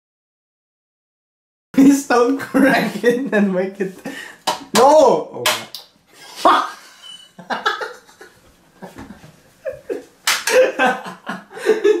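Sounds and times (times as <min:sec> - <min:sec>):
people laughing: 0:06.4 - 0:12.0.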